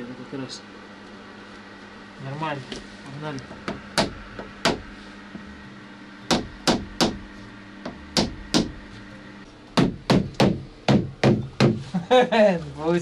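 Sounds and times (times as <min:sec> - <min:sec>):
mallet tapping car window frame: 0:03.6 - 0:04.8, 0:06.3 - 0:07.2, 0:07.8 - 0:08.8, 0:09.8 - 0:11.8.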